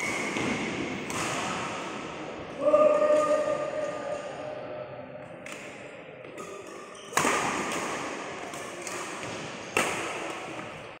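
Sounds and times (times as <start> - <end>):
racket hitting shuttlecock: 0.0 - 2.0, 5.4 - 10.8.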